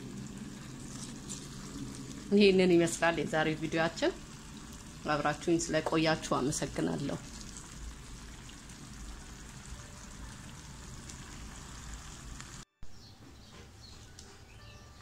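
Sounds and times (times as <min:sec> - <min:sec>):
sauce sizzling in a frying pan: 0:00.0 - 0:12.6.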